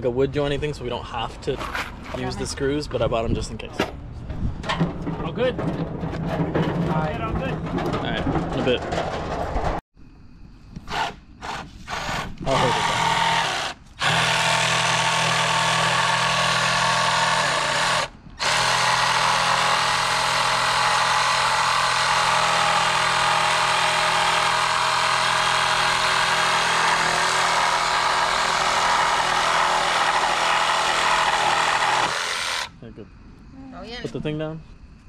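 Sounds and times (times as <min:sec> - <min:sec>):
cordless drill boring into wood: 0:10.9 - 0:32.7.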